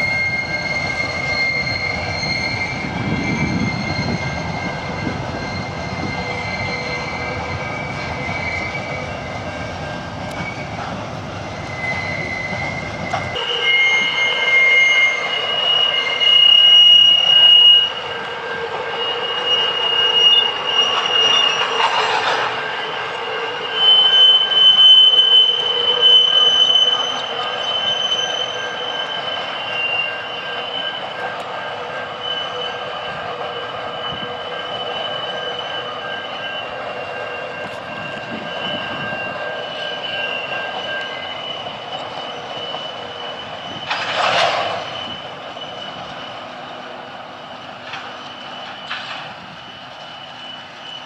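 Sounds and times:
train running noise: 0.0 - 51.0
train wheels squealing: 0.0 - 51.0.

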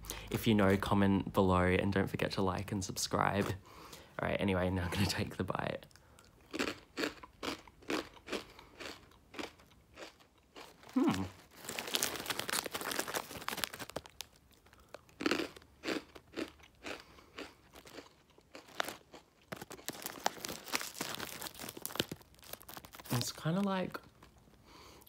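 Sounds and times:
person crunching and chewing crisps: 5.9 - 25.0.

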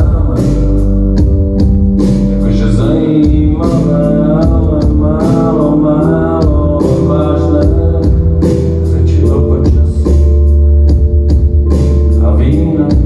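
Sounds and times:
man singing: 0.0 - 1.3, 2.3 - 10.6, 12.0 - 13.0
bass: 0.0 - 13.0
drums beating: 0.0 - 13.0
keyboard chords: 0.0 - 13.0.

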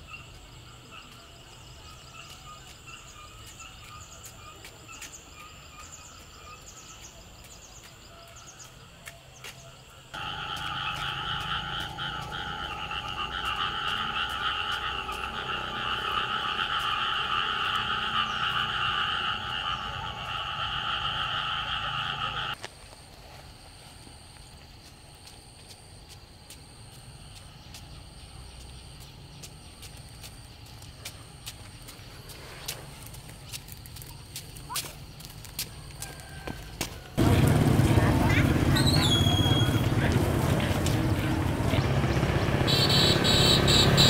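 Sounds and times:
chorus of frogs calling: 0.0 - 7.4, 8.0 - 22.6, 36.0 - 44.0
birds chirping: 0.0 - 22.6, 37.2 - 44.0
insects chirping: 0.0 - 37.4, 38.0 - 44.0.

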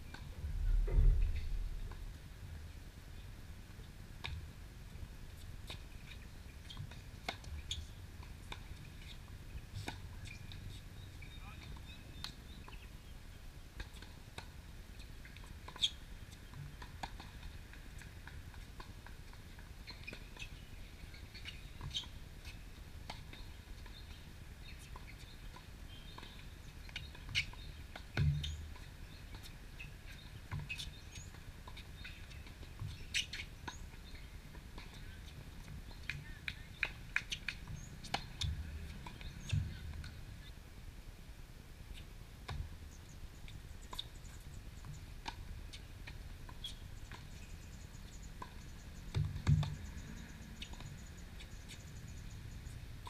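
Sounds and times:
low steady rumble: 0.0 - 3.7
tennis ball hits and bounces: 48.4 - 49.8.

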